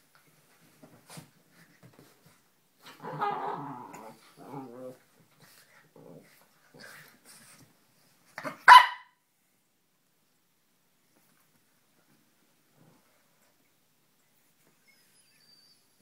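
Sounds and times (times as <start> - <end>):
dogs growling in play: 2.8 - 7.4
dog barking: 8.4 - 9.2.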